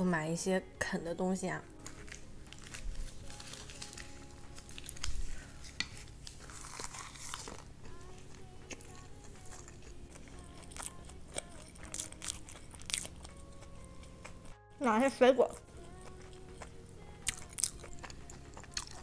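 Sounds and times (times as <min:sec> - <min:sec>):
dried seaweed crinkling: 0:01.8 - 0:13.4
crunching bites and chewing: 0:01.8 - 0:14.6, 0:15.8 - 0:19.0.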